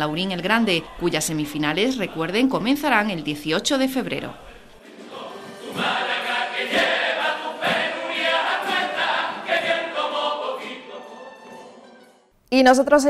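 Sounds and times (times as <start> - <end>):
men singing in chorus: 4.4 - 11.4.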